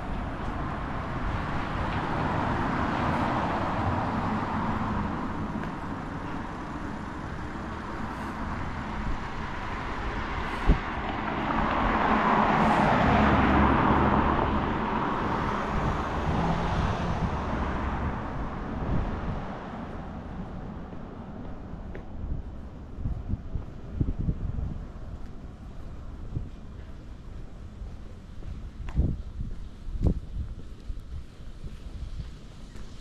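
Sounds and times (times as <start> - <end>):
vehicle passing close by: 0.0 - 21.3
street traffic: 0.0 - 33.0.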